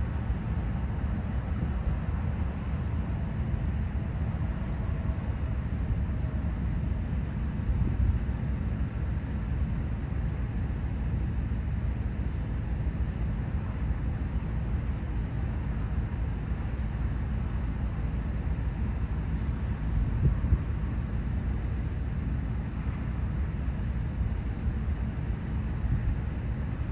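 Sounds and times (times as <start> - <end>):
diesel locomotives idling: 0.0 - 26.9.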